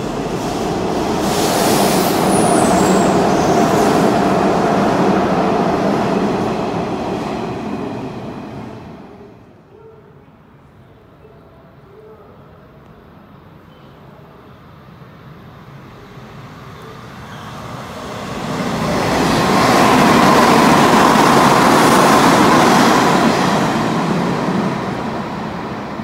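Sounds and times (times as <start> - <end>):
train wheels rumbling on rail: 0.0 - 9.4, 15.3 - 26.0.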